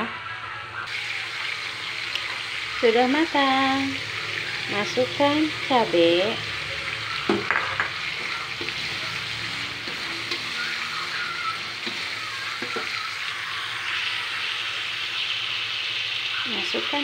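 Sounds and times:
paste sizzling in oil: 0:00.9 - 0:17.0
metal spatula scraping wok: 0:08.0 - 0:13.2.

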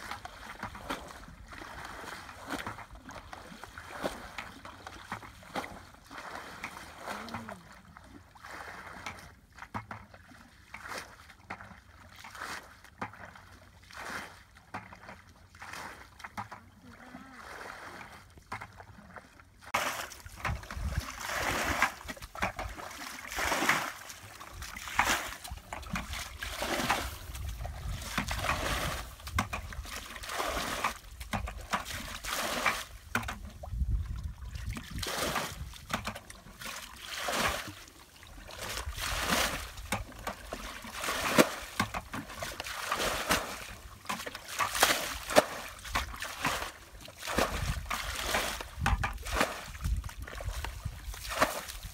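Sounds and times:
water poured from buckets splashing: 0:00.0 - 0:16.6, 0:19.7 - 0:51.9.

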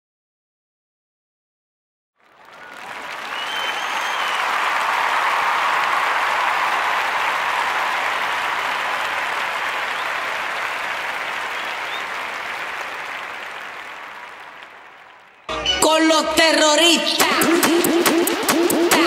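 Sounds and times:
crowd applause: 0:02.2 - 0:15.5.

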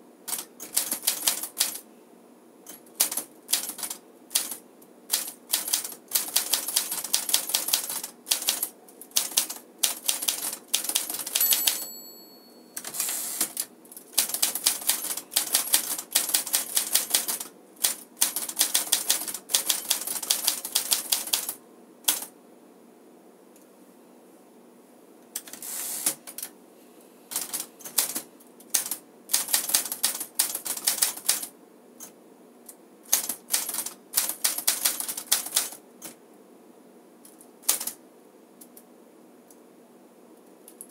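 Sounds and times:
manual typewriter keystrokes: 0:00.3 - 0:01.8, 0:02.7 - 0:11.9, 0:12.8 - 0:22.3, 0:27.3 - 0:31.5, 0:33.1 - 0:36.2, 0:37.3 - 0:38.0
typewriter bell ringing: 0:11.2 - 0:13.4.

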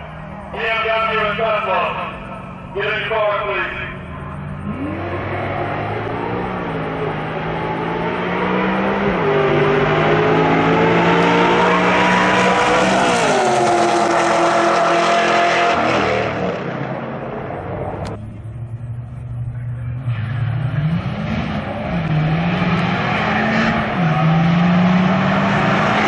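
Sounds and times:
racing car engines at full throttle: 0:00.0 - 0:26.0.

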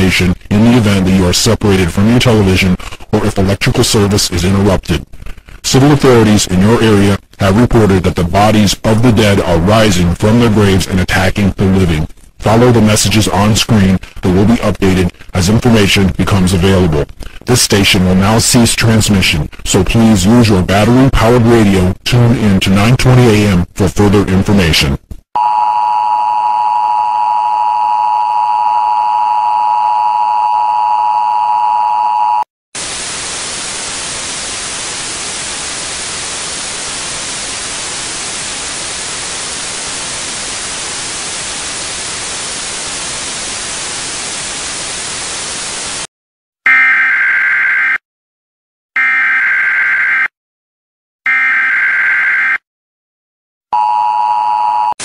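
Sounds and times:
tv static hiss: 0:00.0 - 0:19.4, 0:32.8 - 0:46.1.

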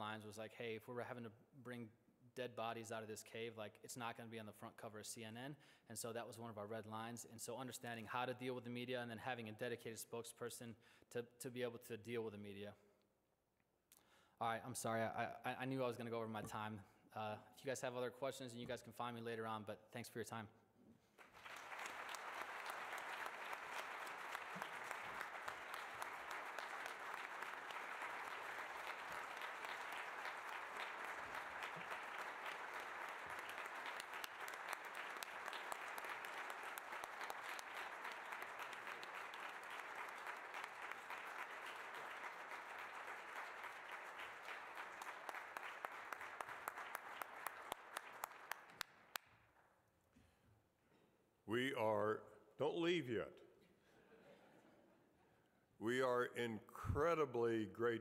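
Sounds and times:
audience applauding: 0:21.2 - 0:49.2.

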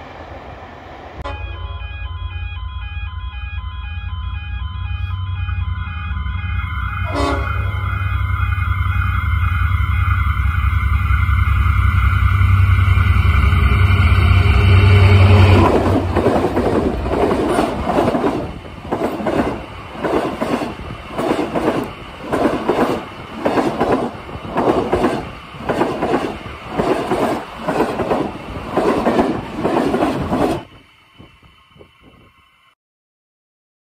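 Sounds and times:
diesel locomotive engine drone: 0:00.0 - 0:32.8
train wheels clattering over rail joints: 0:15.6 - 0:30.7.

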